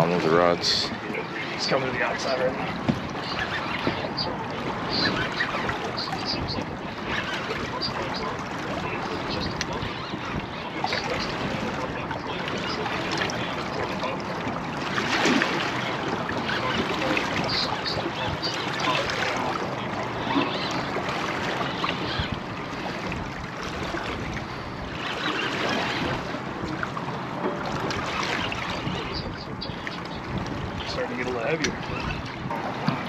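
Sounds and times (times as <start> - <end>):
water lapping against boat hull: 0.0 - 33.0
wind on microphone: 0.0 - 33.0.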